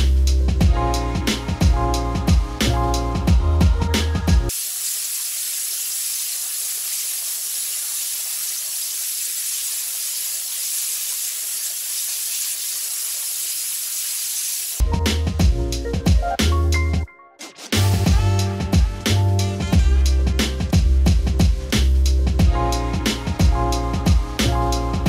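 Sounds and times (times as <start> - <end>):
music with heavy bass beat: 0.0 - 4.5, 14.8 - 25.0
waterjet cutting steel hiss: 4.5 - 14.8.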